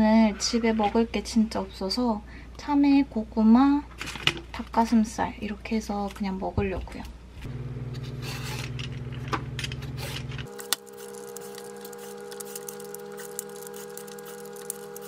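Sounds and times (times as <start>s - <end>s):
peeler scraping melon rind: 9.8s - 15.0s.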